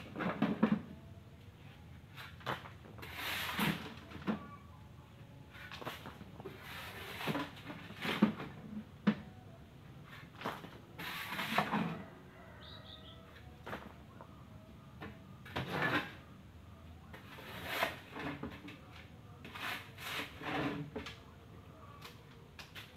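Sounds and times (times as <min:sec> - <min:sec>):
shovel scraping gravel: 0:03.0 - 0:04.0, 0:11.0 - 0:11.8
bird chirping: 0:12.6 - 0:13.3.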